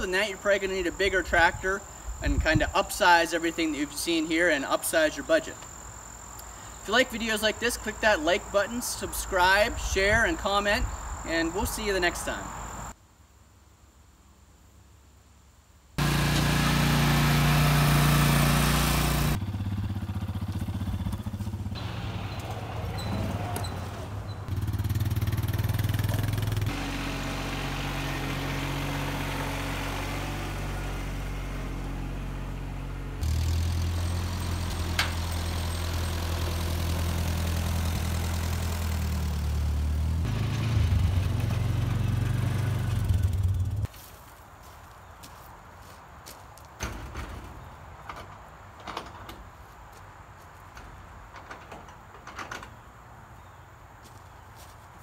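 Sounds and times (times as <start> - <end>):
tractor engine running: 16.0 - 43.9.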